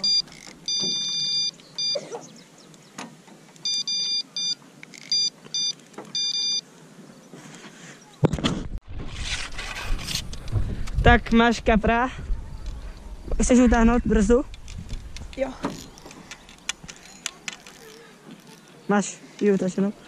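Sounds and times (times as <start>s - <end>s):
bite alarm high beeps: 0.0s - 2.1s, 3.6s - 6.6s.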